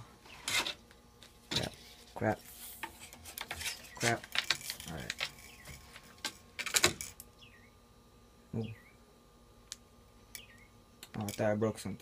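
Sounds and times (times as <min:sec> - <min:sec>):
faint bird chirps: 0:07.4 - 0:07.8, 0:08.5 - 0:09.0, 0:10.4 - 0:10.8.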